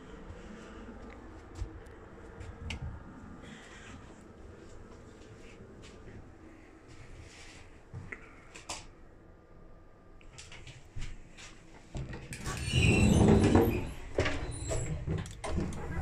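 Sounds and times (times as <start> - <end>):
rumbling clatter of train doors: 10.4 - 16.0.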